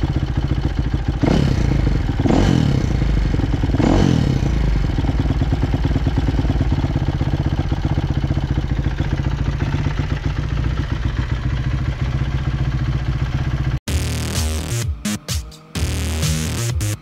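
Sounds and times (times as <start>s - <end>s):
motorcycle engine idling: 0.0s - 13.8s
electronic music: 13.9s - 17.0s.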